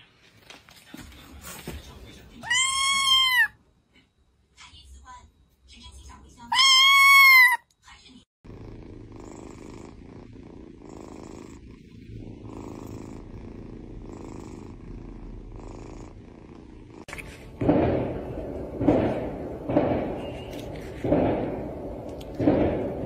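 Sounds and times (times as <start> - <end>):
rough cat cry: 2.4 - 3.6, 6.5 - 7.6
kitten purring: 8.4 - 18.0.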